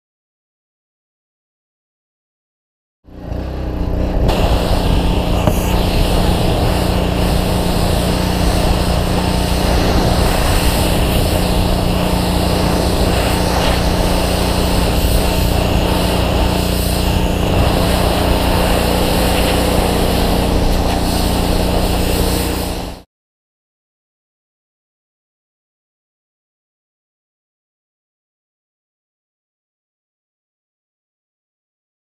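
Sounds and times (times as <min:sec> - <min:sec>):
pressure washer jet hissing: 0:04.3 - 0:23.0.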